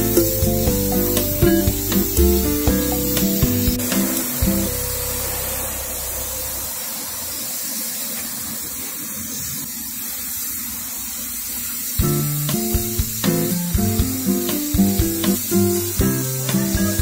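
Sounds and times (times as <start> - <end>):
background music with plucked notes: 0.0 - 5.8, 12.0 - 17.0
paint spray gun hissing: 0.0 - 17.0.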